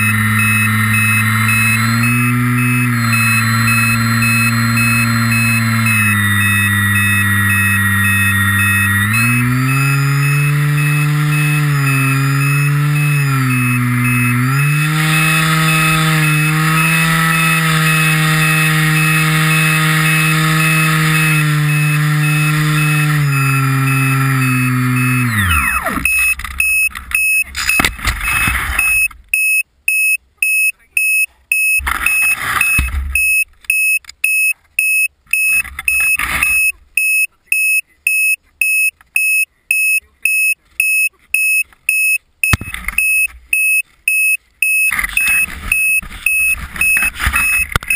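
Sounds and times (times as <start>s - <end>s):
model aircraft motor droning: 0.0s - 26.3s
high electronic beeps: 0.0s - 47.9s
knocks and rustles: 31.8s - 33.6s.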